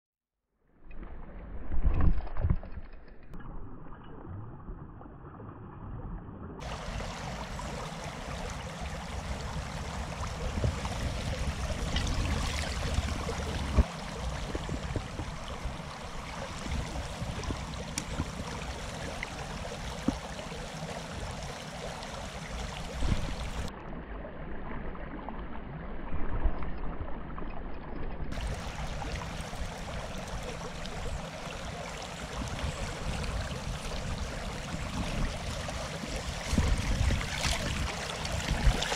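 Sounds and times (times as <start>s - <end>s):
river rushing over stones: 6.6s - 23.7s, 28.4s - 38.9s.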